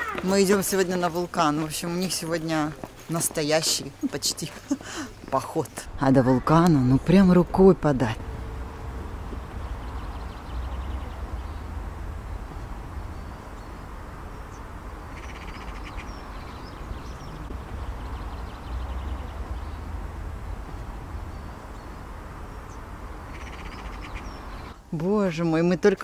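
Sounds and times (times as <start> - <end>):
birds chirping: 0.0 - 26.0
wind rumbling on microphone: 5.8 - 24.8
rattling bird calls: 14.5 - 17.4, 23.2 - 24.8.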